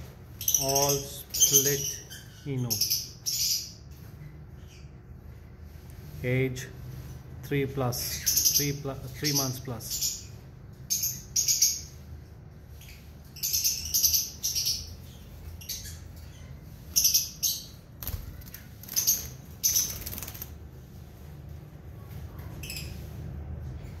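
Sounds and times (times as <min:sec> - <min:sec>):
lovebirds chirping: 0:00.0 - 0:06.7, 0:07.4 - 0:21.1
wings fluttering: 0:17.9 - 0:21.0.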